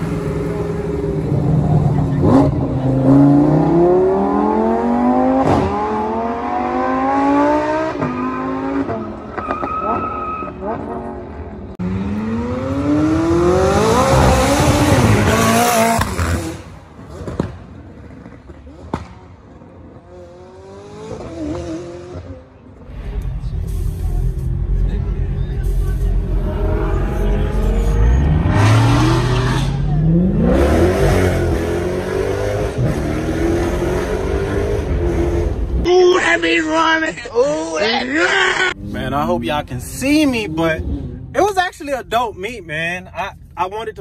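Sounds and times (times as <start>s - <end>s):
car engine accelerating: 0.0s - 35.9s.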